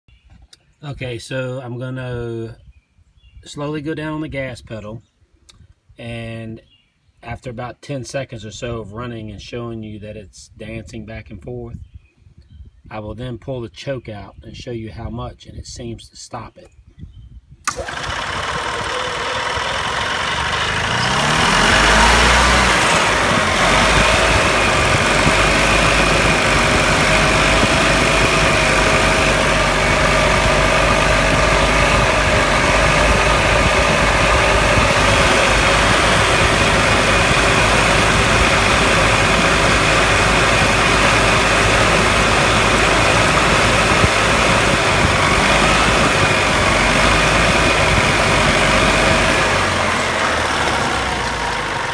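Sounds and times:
golf cart engine revving: 0:17.6 - 0:51.9.

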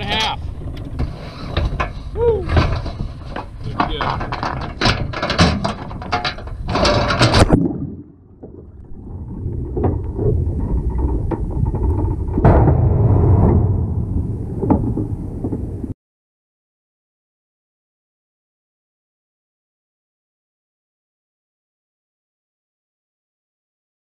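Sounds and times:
muffled underwater rumble: 0:00.0 - 0:16.0
splash and clatter: 0:02.6 - 0:12.9.

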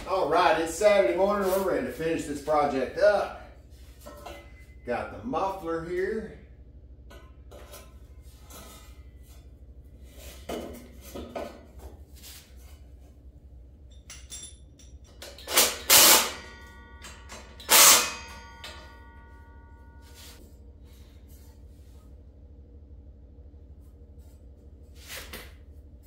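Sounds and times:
loud ringing metal clangs: 0:02.1 - 0:06.0, 0:13.9 - 0:20.4.

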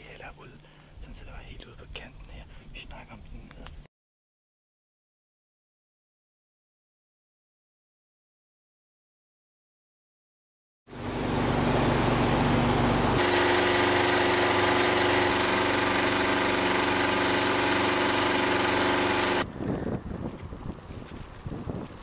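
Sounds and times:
outboard motor running: 0:10.9 - 0:19.5
wind noise: 0:19.4 - 0:22.0.

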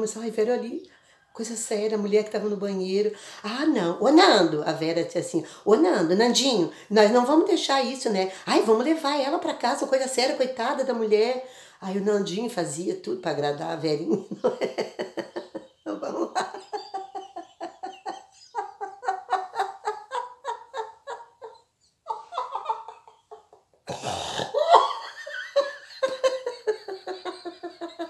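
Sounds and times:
woman laughing hard: 0:14.2 - 0:28.0.

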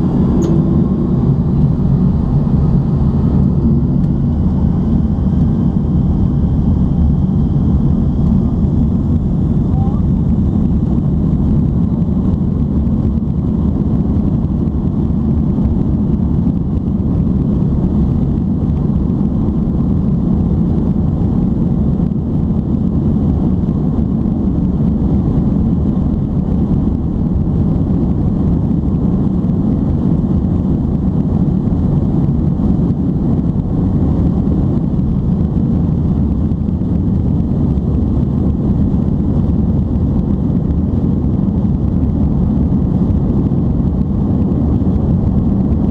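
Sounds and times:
jet cabin engine rumble: 0:00.0 - 0:45.9.

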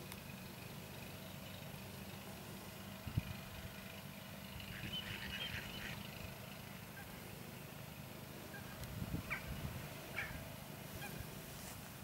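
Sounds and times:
waterfowl calling: 0:04.6 - 0:07.3, 0:08.4 - 0:11.4
wind buffeting microphone: 0:08.8 - 0:10.5.

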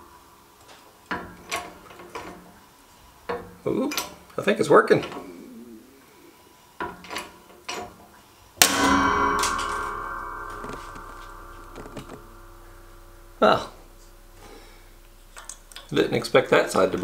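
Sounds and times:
metallic ringing: 0:08.6 - 0:17.0.

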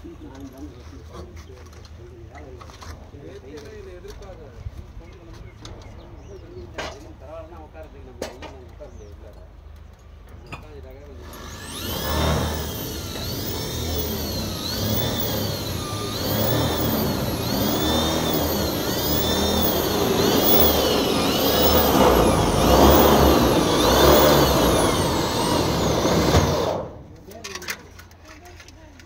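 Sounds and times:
power drill whining: 0:11.2 - 0:27.7
rough grinding noise: 0:11.2 - 0:27.7.

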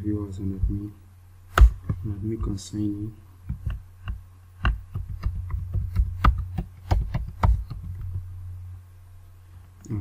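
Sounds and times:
low hum: 0:07.8 - 0:10.0.

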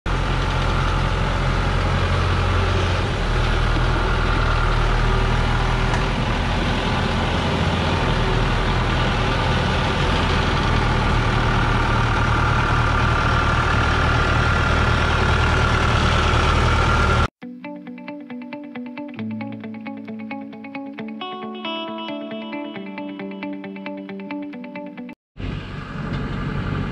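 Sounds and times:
diesel truck engine running: 0:00.1 - 0:17.3, 0:25.4 - 0:26.9.

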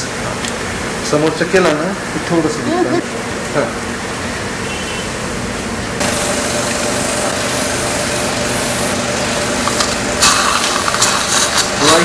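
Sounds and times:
machine hum with hiss: 0:01.9 - 0:12.0.

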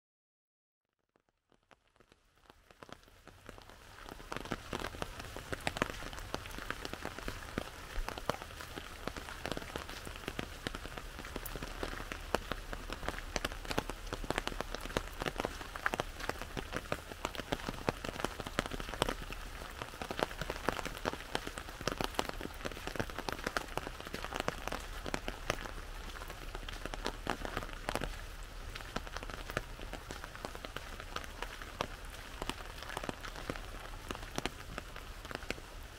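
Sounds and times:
rain pattering on umbrella: 0:01.1 - 0:35.9.

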